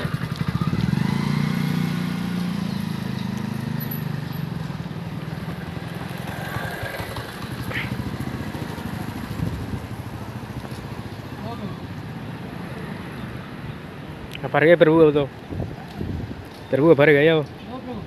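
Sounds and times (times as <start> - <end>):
motor vehicle engine running: 0.0 - 11.7
outdoor background noise: 0.0 - 18.0.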